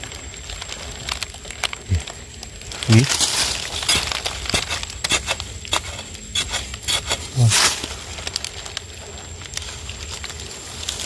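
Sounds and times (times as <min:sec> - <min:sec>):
dry leaves crackling: 0:00.0 - 0:11.0
spade scraping into sandy soil: 0:03.8 - 0:07.8.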